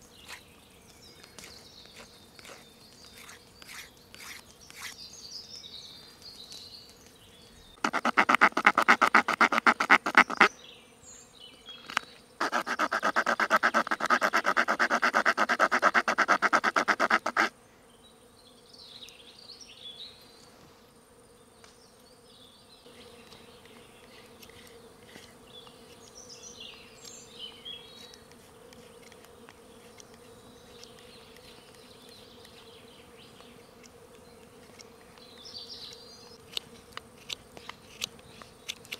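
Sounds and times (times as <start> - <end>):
small saw rasping through wood: 0.2 - 0.5, 1.4 - 5.0, 7.8 - 10.5, 12.4 - 17.5, 24.0 - 26.2, 27.9 - 32.7, 36.4 - 38.9.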